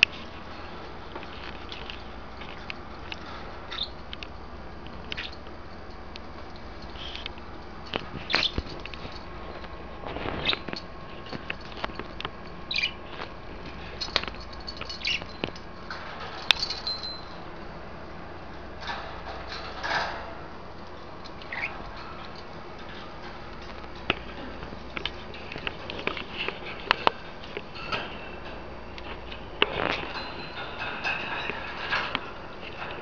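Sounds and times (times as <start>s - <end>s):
beaks and feet tapping: 1.1s - 5.6s, 6.2s - 13.3s, 13.9s - 17.2s, 20.8s - 27.6s
budgerigars chirping: 12.7s - 13.0s, 21.5s - 21.8s
small bell clink: 16.4s - 17.4s.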